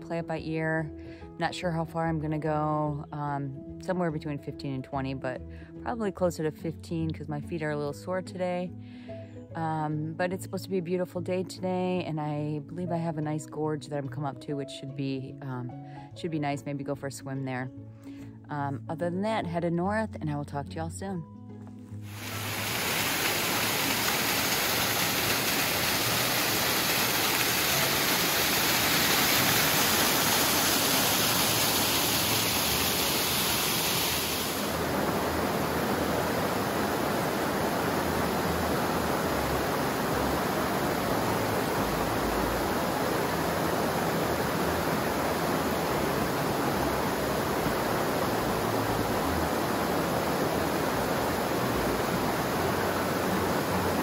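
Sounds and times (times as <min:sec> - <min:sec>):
rush of flowing water: 0:22.0 - 0:54.0.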